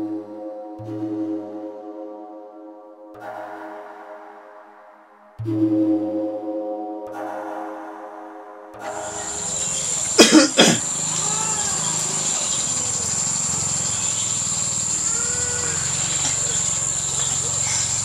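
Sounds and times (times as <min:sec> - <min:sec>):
high-pitched insect chorus: 0:08.9 - 0:18.0
loud short two-part call: 0:08.9 - 0:18.0.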